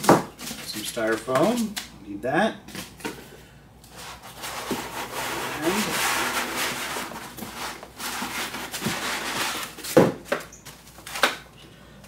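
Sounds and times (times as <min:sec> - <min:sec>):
cardboard and foam rustling: 0:03.9 - 0:11.3.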